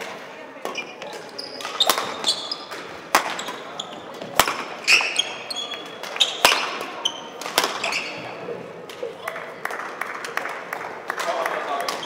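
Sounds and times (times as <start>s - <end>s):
rackets hitting shuttlecock: 0.0s - 9.1s
short high squeaks: 0.8s - 2.7s, 4.8s - 8.3s.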